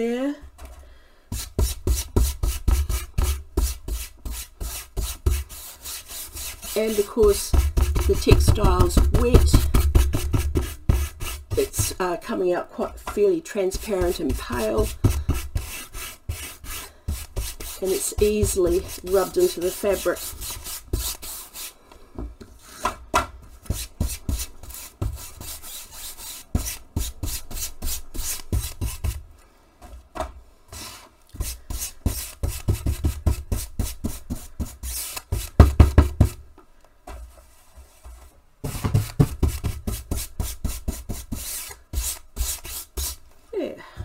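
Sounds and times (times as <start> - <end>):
paintbrush scrubbing fabric: 1.4 - 9.0, 13.7 - 21.8.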